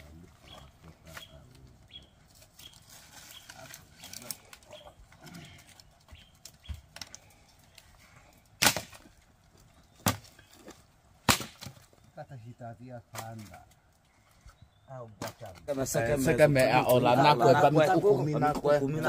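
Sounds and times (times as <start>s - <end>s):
branches cracking: 0.0s - 12.1s, 13.0s - 14.6s
branches snapping loudly: 2.4s - 9.2s, 10.0s - 10.5s, 11.2s - 11.9s.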